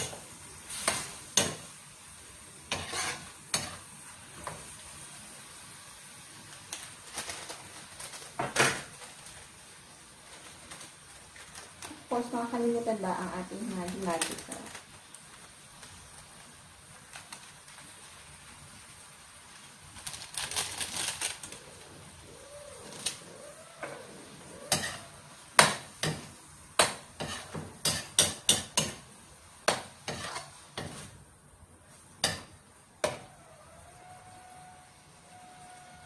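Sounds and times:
metal spatula scraping wok: 2.6s - 4.7s, 22.8s - 29.0s, 29.7s - 31.2s.

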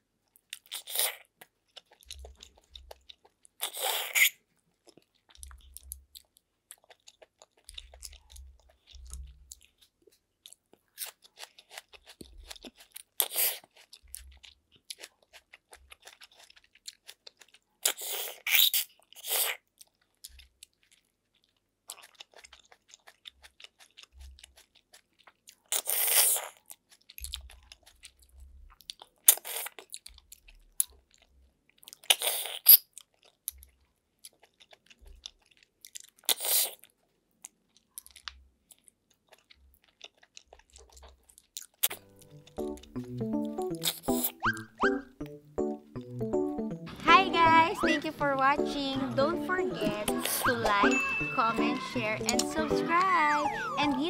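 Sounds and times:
chewing: 0.0s - 45.3s
wet mouth clicks: 0.6s - 9.9s, 10.9s - 20.9s, 31.9s - 33.7s, 34.3s - 45.3s.

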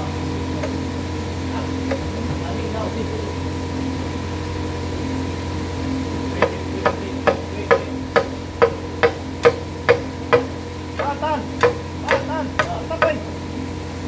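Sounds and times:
workshop hum: 0.0s - 14.0s
hand tool clicking: 6.4s - 13.2s.

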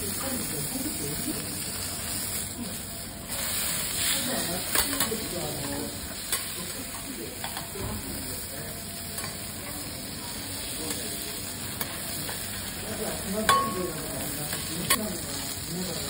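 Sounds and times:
food sizzling on a griddle: 0.0s - 16.0s.

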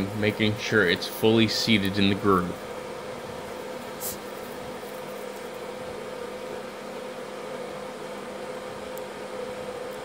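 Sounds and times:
mechanical hum with held tone: 0.0s - 10.0s.

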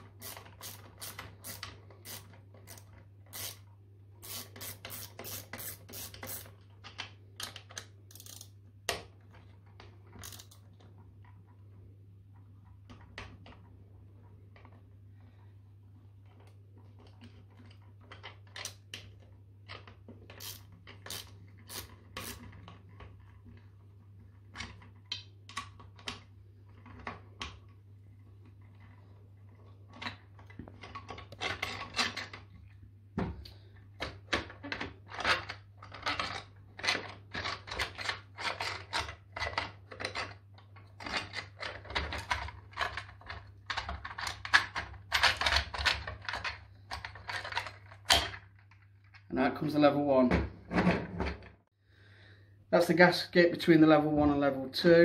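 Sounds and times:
metallic clicks of bolts and tool: 7.4s - 8.5s.

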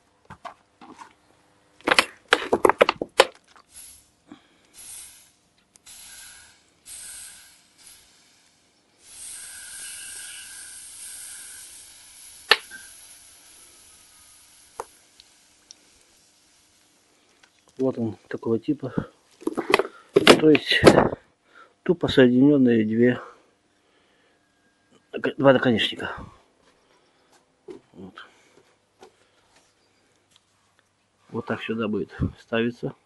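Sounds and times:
hot steel hissing and sizzling: 3.7s - 18.1s.

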